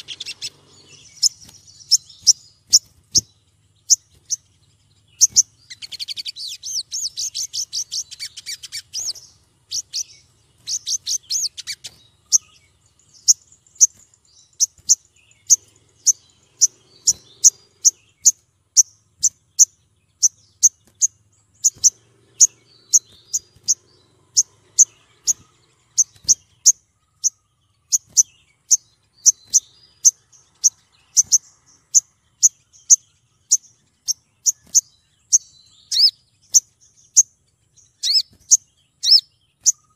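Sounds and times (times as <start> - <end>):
bird chattering trill: 0.0 - 39.9
sharp high bird chirps: 0.0 - 39.9.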